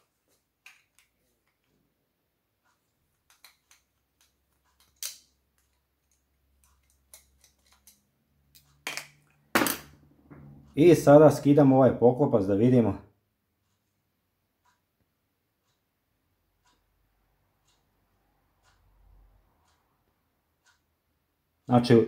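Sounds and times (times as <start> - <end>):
screwdriver clicking on screws: 3.3 - 8.0.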